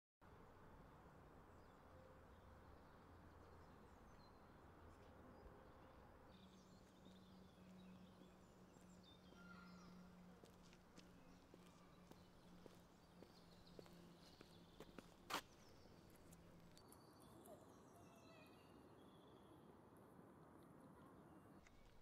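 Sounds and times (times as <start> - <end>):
faint bird chirps: 16.8 - 19.7.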